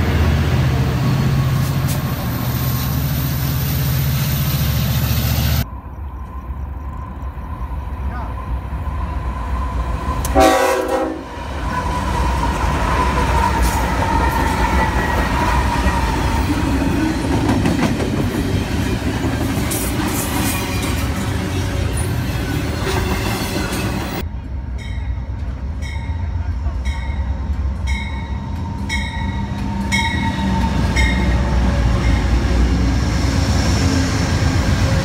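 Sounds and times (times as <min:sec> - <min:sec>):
train horn blast: 0:10.2 - 0:11.4
train wheels rolling on rails: 0:11.3 - 0:35.0.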